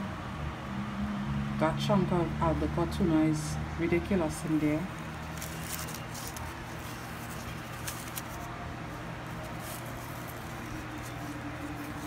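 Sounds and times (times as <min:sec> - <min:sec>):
plastic gloves and paper crinkling: 0:04.0 - 0:12.0
small crackles: 0:04.9 - 0:08.5.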